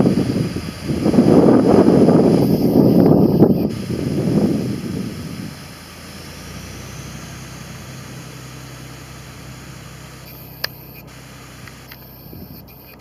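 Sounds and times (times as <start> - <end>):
diesel railcar engine droning: 0.0 - 13.0
sharp click: 10.3 - 13.0.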